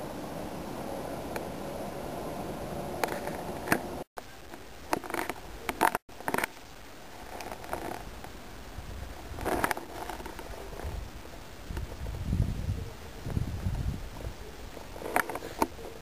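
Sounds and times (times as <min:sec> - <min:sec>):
steady low hiss: 0:00.0 - 0:16.0
camera handling scrapes and rubbing: 0:03.0 - 0:04.0, 0:04.9 - 0:06.6, 0:07.2 - 0:08.2, 0:09.2 - 0:11.0, 0:14.8 - 0:16.0.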